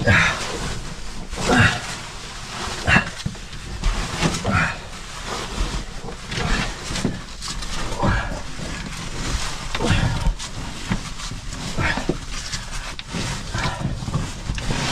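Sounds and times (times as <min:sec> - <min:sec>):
person groaning and breathing: 0:00.0 - 0:00.6, 0:01.4 - 0:02.1
clothing scraping against rock: 0:00.0 - 0:14.9.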